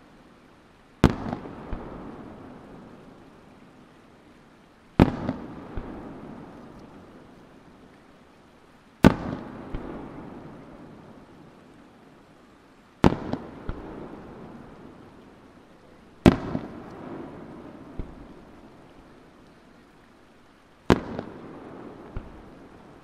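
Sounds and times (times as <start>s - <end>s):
smaller firework cracks: 1.0s - 2.8s, 5.0s - 7.2s, 9.0s - 11.1s, 13.0s - 15.4s, 16.2s - 19.2s, 20.8s - 23.0s
echo off mountains: 1.0s - 23.0s.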